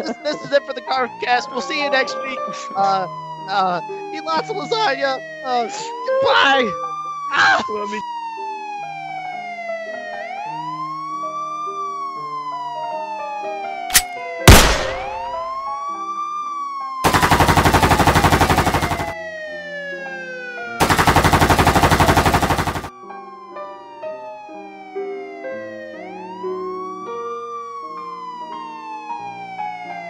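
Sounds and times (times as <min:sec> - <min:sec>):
police siren wailing: 0:02.7 - 0:13.9, 0:17.8 - 0:20.8, 0:22.8 - 0:30.0
machine-gun fire: 0:13.9 - 0:15.4, 0:17.0 - 0:19.2, 0:20.8 - 0:22.9
sharp crack: 0:13.9 - 0:15.5, 0:17.1 - 0:19.2.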